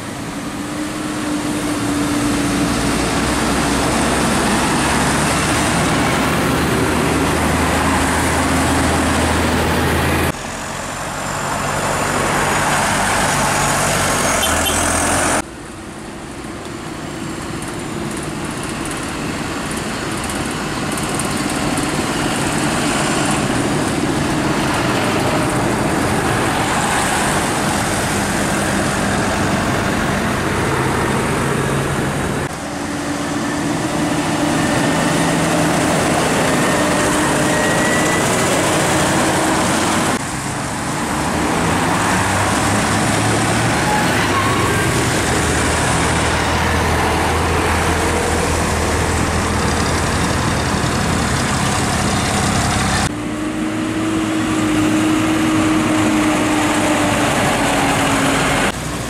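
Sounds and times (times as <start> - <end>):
cars passing: 0.0 - 59.0
tractor engines driving past: 0.0 - 59.0
tyre noise on road: 0.0 - 59.0.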